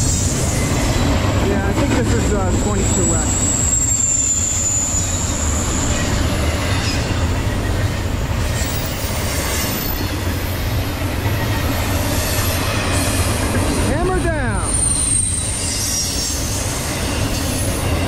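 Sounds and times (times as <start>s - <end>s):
freight train rumbling on rails: 0.0s - 18.0s
high-pitched wheel squeal: 2.8s - 7.6s, 14.6s - 18.0s.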